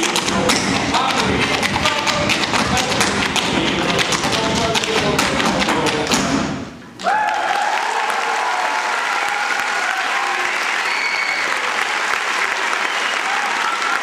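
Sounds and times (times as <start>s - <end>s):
step-dance foot taps: 0.0s - 6.4s
audience applauding: 7.0s - 14.0s
audience cheering: 7.0s - 14.0s.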